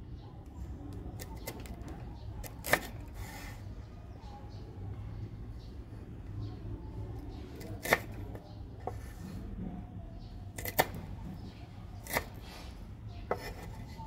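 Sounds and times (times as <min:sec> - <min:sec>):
knife chopping on wooden board: 0:10.6 - 0:11.0, 0:12.0 - 0:12.4, 0:13.3 - 0:13.7.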